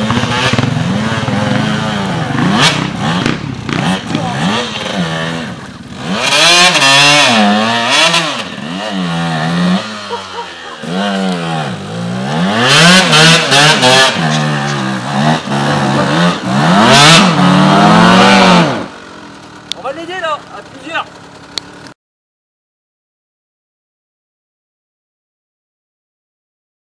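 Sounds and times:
motorcycle engine revving hard: 0.0 - 19.3.

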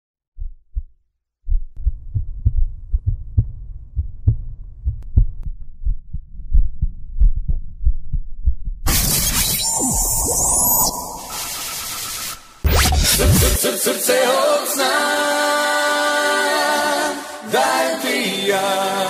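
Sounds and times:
heartbeat thumps: 0.4 - 8.9
rushing noise with sweeping tone: 8.9 - 13.6.

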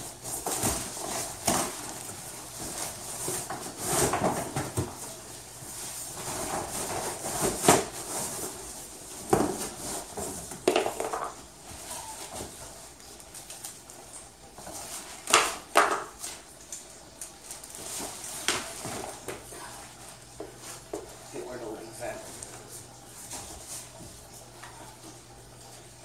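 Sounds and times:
plastic wrap rustling: 0.0 - 25.0
cardboard scraping: 0.2 - 10.6.

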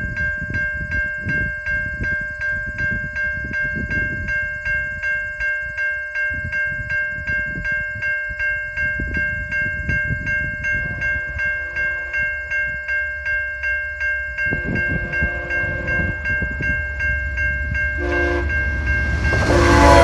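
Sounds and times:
railway crossing bell ringing: 0.0 - 20.0
train rumble: 0.0 - 20.0
train horn blasts: 10.8 - 12.2, 14.5 - 16.3, 18.0 - 20.0.

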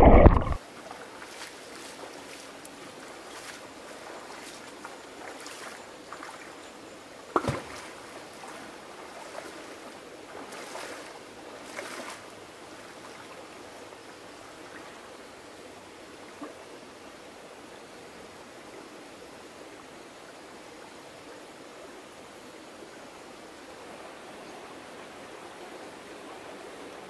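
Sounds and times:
person wading splashing: 0.0 - 2.5, 3.2 - 6.5, 7.4 - 12.2
creek running over stones: 0.0 - 19.0.

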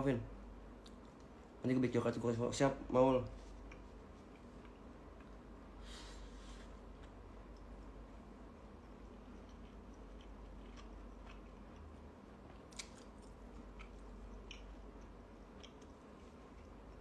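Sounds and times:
chewing mouth sounds: 8.6 - 17.0.

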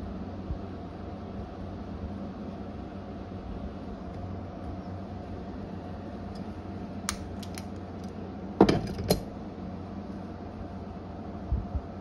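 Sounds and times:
steady low hum: 0.0 - 12.0
locking pliers clacking: 7.1 - 7.7.

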